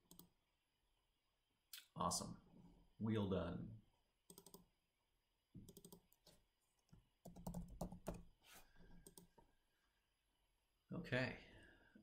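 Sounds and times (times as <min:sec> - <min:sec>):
typing on computer keyboard: 0:04.3 - 0:04.7, 0:05.7 - 0:06.2, 0:07.2 - 0:08.3.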